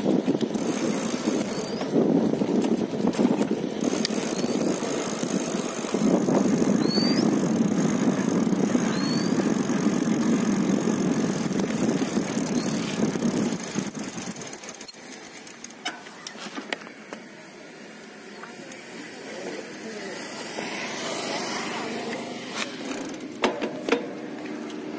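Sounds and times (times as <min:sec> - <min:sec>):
wind rushing over microphone: 0:00.0 - 0:14.7.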